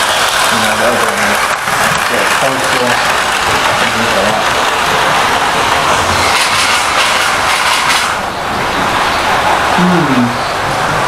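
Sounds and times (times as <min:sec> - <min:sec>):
model train motor whirring: 0:00.0 - 0:08.2.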